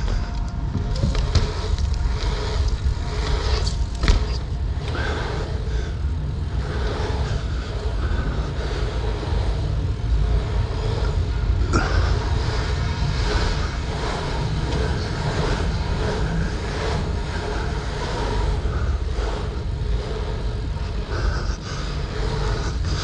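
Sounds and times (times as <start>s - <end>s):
bike clacks: 0.0s - 7.6s
tyres rumbling: 0.0s - 23.0s.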